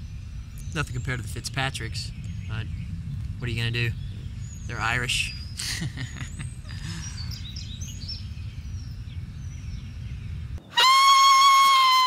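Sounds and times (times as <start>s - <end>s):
low rumble: 0.0s - 10.6s
birds chirping: 0.0s - 10.8s.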